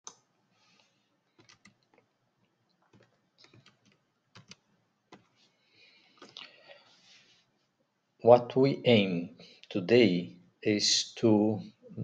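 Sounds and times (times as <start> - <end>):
keyboard and mouse clicks: 1.4 - 2.1, 2.8 - 5.3.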